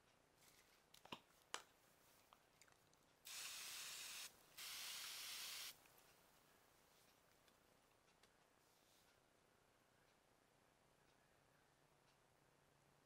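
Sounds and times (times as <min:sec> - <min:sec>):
spray starch hissing: 0:03.3 - 0:05.8.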